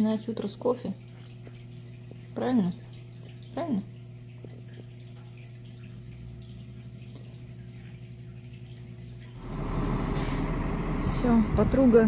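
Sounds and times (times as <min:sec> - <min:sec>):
faint dripping: 0:00.0 - 0:09.5
low hum: 0:09.2 - 0:12.0.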